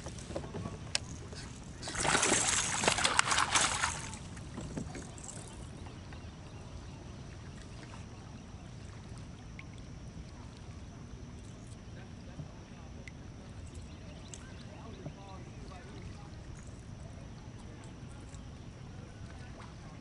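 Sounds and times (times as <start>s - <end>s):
fish thrashing and splashing: 1.0s - 5.6s.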